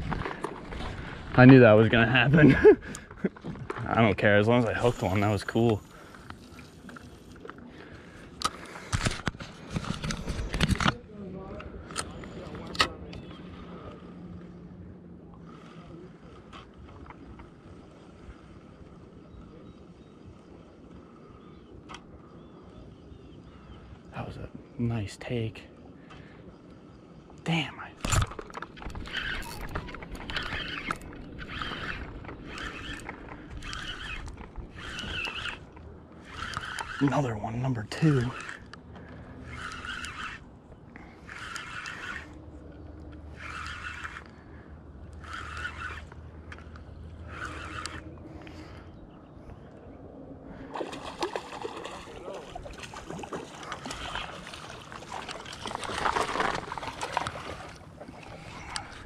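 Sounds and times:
spinning reel gears whirring: 28.4s - 38.8s, 39.4s - 40.5s, 41.2s - 48.6s, 55.6s - 59.0s
water splashing from fish: 50.7s - 58.5s.

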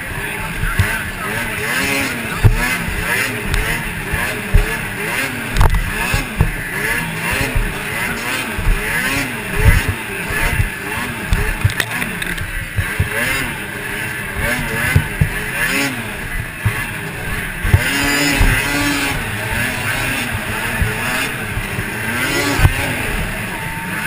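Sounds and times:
sled thumping on track: 0.0s - 24.0s
snowmobile engine racing: 0.0s - 24.0s
wind noise on microphone: 16.1s - 23.8s.

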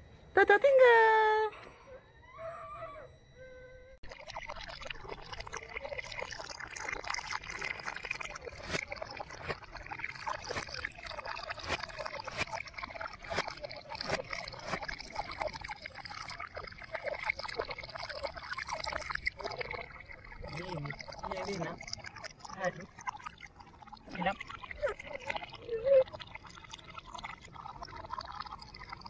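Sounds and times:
hose water pouring into basin: 4.0s - 29.0s.

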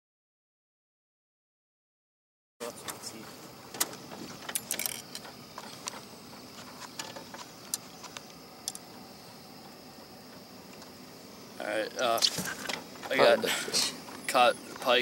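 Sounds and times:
fishing line and lure rattling: 4.4s - 5.4s
faint steady high tone: 13.1s - 15.0s.

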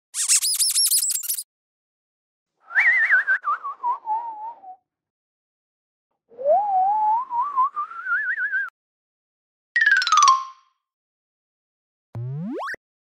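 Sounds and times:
cartoon warbling whistle: 12.2s - 12.8s.

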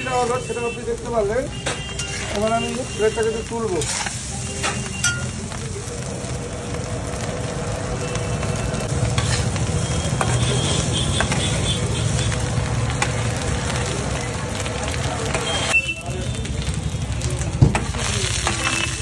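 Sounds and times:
rice sizzling on a griddle: 0.0s - 19.0s
metal spatula scraping: 1.6s - 2.6s, 3.7s - 5.2s, 9.1s - 9.6s.

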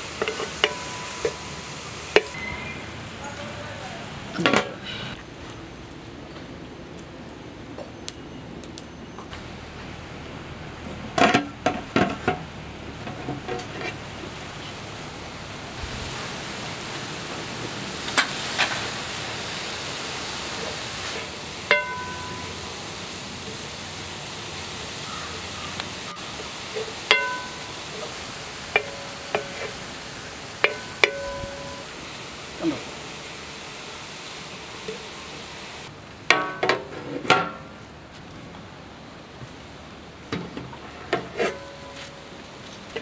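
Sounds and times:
cooking hiss: 0.0s - 6.0s, 9.3s - 37.9s, 39.0s - 43.0s
metal lid clanking: 0.2s - 1.5s, 21.7s - 22.6s, 26.8s - 28.1s, 28.7s - 29.8s, 30.6s - 31.8s
metal vessel ringing: 0.2s - 1.6s, 21.7s - 22.7s, 27.1s - 28.1s, 28.8s - 29.7s, 30.6s - 31.9s, 41.4s - 42.2s.

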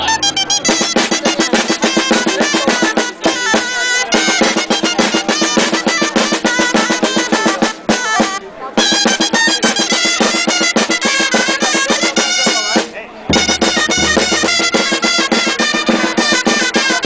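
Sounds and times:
shawms playing a lively tune: 0.0s - 17.0s
snare drum rolls: 12.8s - 16.9s
bass drum beats: 13.3s - 16.0s.

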